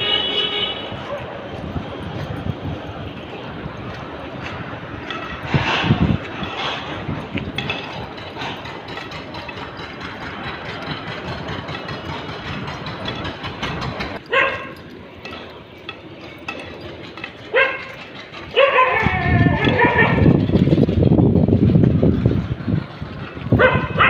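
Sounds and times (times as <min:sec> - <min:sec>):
street noise: 0:00.0 - 0:24.0
dog barking: 0:01.0 - 0:01.4, 0:14.3 - 0:14.8, 0:17.5 - 0:17.9, 0:18.5 - 0:19.0, 0:23.6 - 0:24.0.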